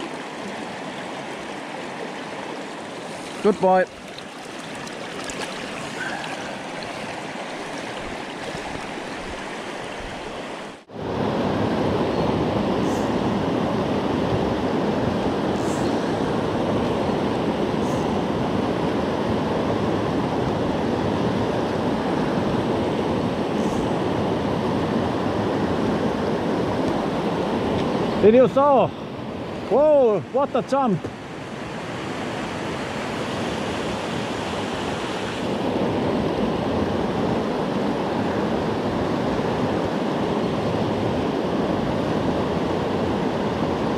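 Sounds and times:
river rapids rushing: 0.0 - 10.9.

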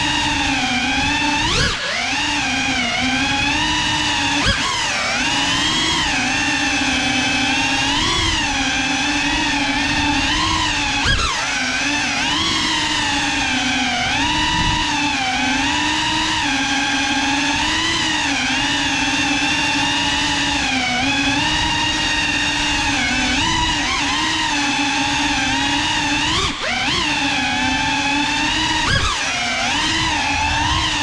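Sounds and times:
drone motors whining: 0.0 - 31.0.

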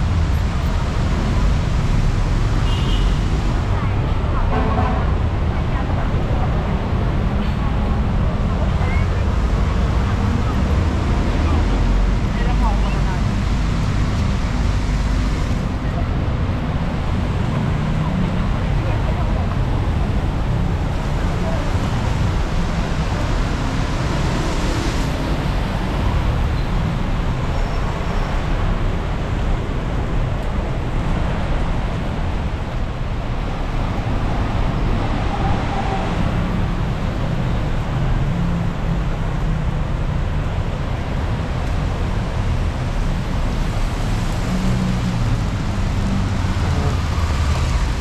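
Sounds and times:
car engines: 0.0 - 48.0
tyres hissing on wet road: 8.1 - 48.0
rain falling: 41.4 - 48.0.

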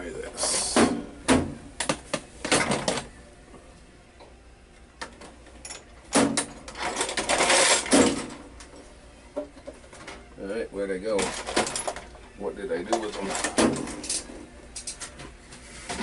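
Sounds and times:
metal parts rattling and clattering: 5.6 - 8.4, 11.1 - 12.2, 12.8 - 15.1.

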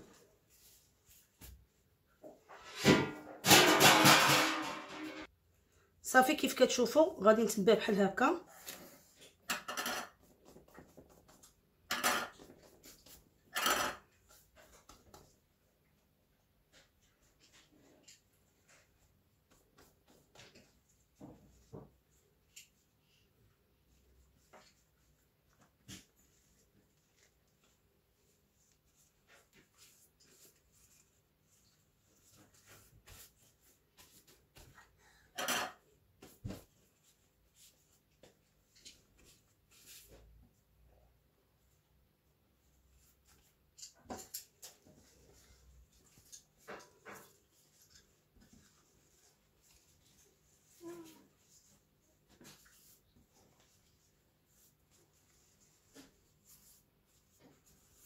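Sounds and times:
pastry sheets rustling: 16.6 - 34.8, 42.5 - 58.0
light taps and crinkles: 43.0 - 58.0.

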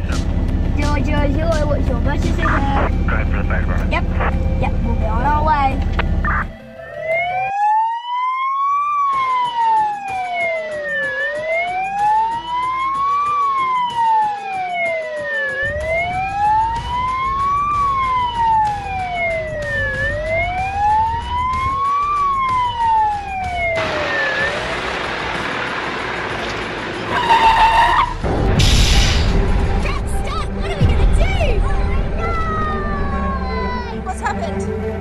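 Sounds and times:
truck engine and road noise: 0.0 - 35.0
electronic siren wailing: 6.1 - 24.9, 27.0 - 28.2.

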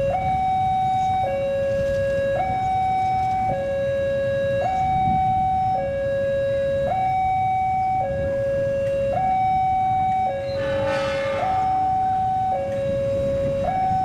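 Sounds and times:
two-tone electronic warning alarm: 0.0 - 14.0
low rumble: 10.5 - 13.7.

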